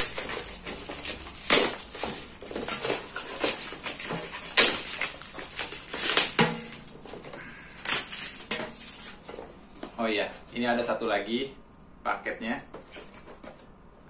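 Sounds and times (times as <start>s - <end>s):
packaging rustling and crackling: 0.0s - 9.8s.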